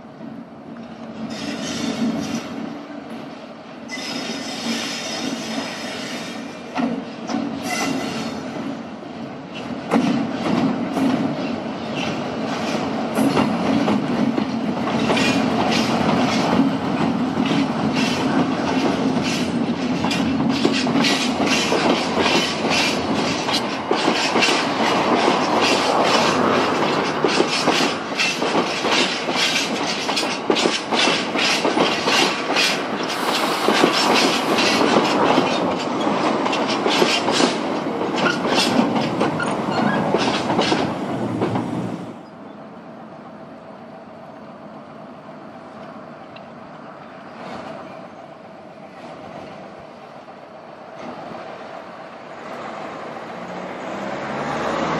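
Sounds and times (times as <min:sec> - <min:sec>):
wheels clattering over rail joints: 0:09.5 - 0:41.8
wheels squealing on track: 0:39.4 - 0:40.2.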